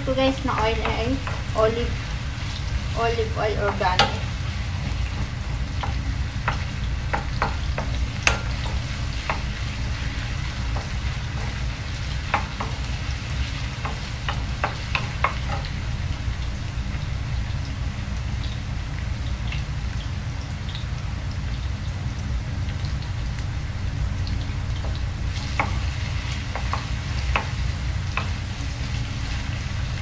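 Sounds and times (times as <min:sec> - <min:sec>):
ginger sizzling in oil: 0:00.0 - 0:30.0
wooden spoon clicking on pan: 0:00.5 - 0:01.5, 0:03.7 - 0:09.5, 0:12.2 - 0:12.8, 0:13.8 - 0:15.7, 0:26.5 - 0:28.4.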